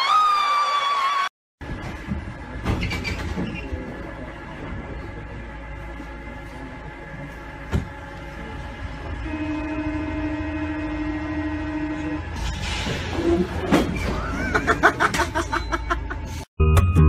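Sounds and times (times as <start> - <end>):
train carriage hum: 1.6 - 16.5
train door warning buzzer: 9.0 - 12.4
man laughing: 14.2 - 16.4.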